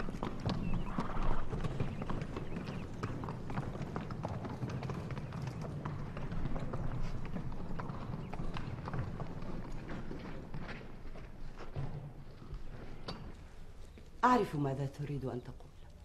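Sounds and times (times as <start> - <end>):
hooves clip-clopping on stone: 0.0 - 16.0.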